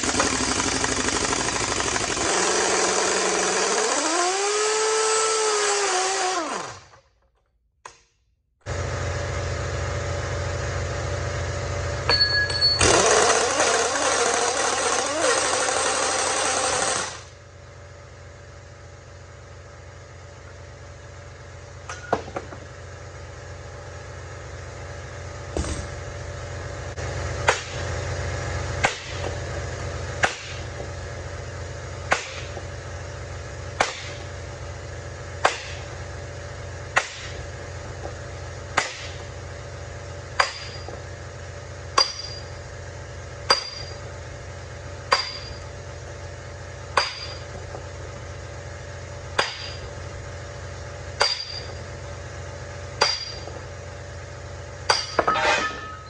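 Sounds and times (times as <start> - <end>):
air impact wrench hammering: 0.0 - 7.0, 12.0 - 17.4, 25.4 - 26.2, 27.4 - 28.0, 28.8 - 31.0, 31.9 - 32.7, 33.7 - 34.4, 35.3 - 36.0, 36.9 - 39.4, 40.2 - 41.2, 41.8 - 44.3, 44.9 - 45.9, 46.7 - 48.2, 49.2 - 50.1, 51.1 - 52.2, 52.8 - 53.7, 54.8 - 56.0
steady low hum: 17.1 - 56.0
metal hammer blows: 45.1 - 45.6, 54.9 - 56.0.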